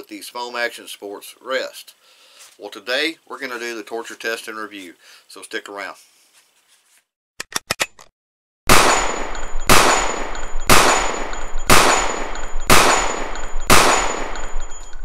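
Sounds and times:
gunshots with long echo: 8.7 - 14.9.

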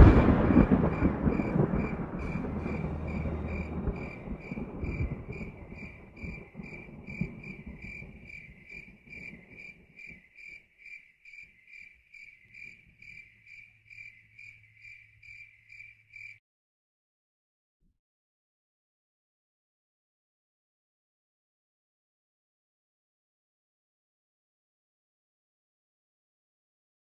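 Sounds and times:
low rumble: 0.0 - 7.4
cricket chirping: 0.0 - 16.4.

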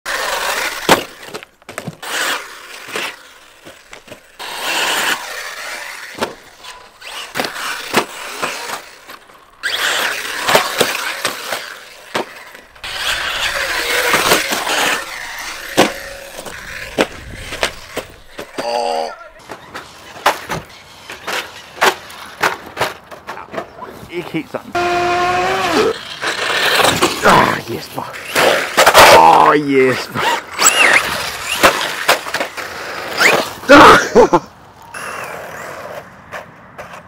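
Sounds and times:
tyres scrabbling over gravel: 0.1 - 37.0.

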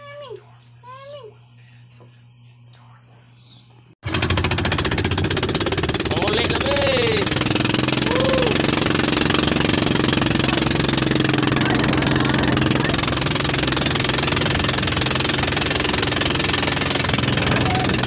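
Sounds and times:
boat engine drone: 4.0 - 18.0
water splashing along hull: 4.1 - 18.0.

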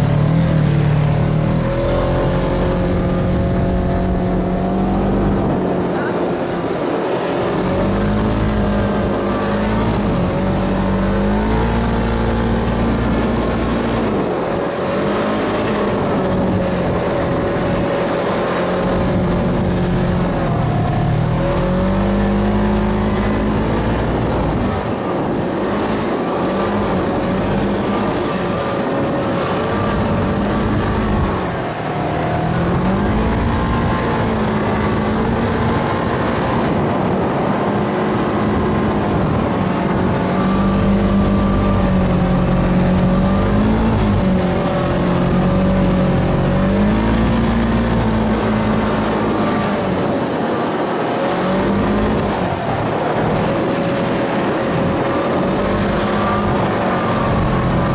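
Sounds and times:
buggy engine revving: 0.0 - 57.9.

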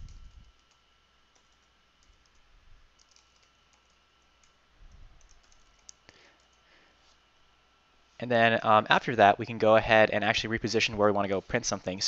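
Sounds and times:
typing on computer keyboard: 3.0 - 4.6, 5.2 - 6.6.

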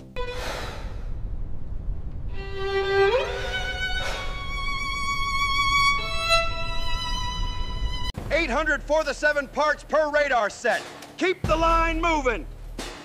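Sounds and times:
low rumble: 0.1 - 9.2
solo violin long held notes: 2.3 - 8.2.

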